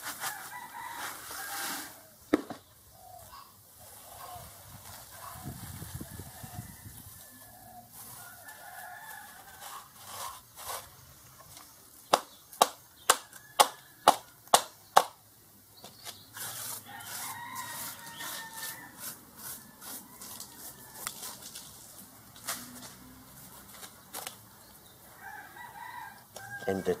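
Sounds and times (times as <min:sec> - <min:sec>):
rooster crowing: 0:00.3 - 0:02.0, 0:16.8 - 0:21.2, 0:25.1 - 0:27.0
scratchy rustling: 0:03.8 - 0:11.1, 0:16.0 - 0:24.4.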